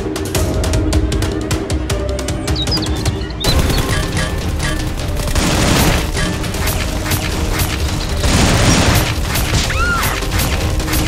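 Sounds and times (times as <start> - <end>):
action music: 0.0 - 11.0
gunshots: 3.4 - 11.0.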